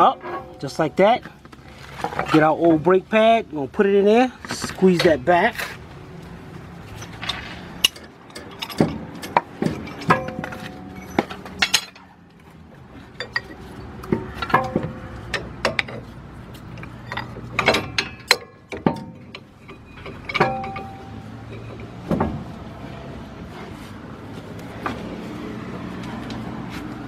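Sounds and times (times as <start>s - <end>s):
metal clinks and knocks: 0.0s - 2.5s, 6.9s - 12.1s, 13.1s - 22.6s.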